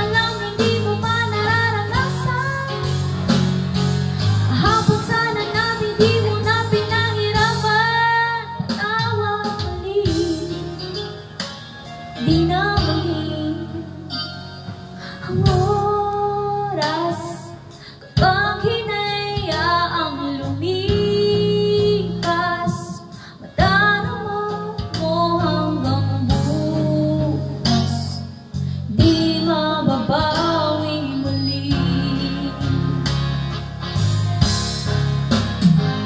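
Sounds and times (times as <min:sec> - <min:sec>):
woman singing into a microphone: 0:00.0 - 0:34.0
guitar accompaniment: 0:00.0 - 0:36.0.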